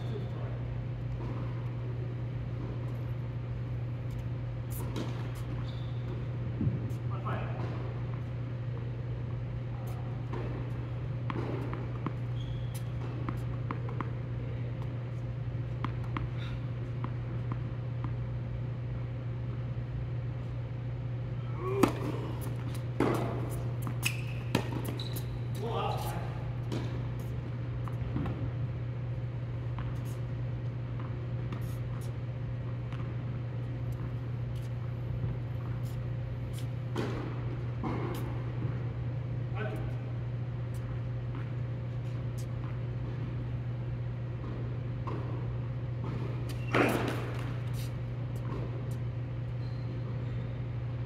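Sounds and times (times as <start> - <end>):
low hall hum: 0.0 - 51.0
shoe squeaks on court: 4.1 - 7.0, 11.6 - 13.6, 21.8 - 26.4, 46.4 - 50.7.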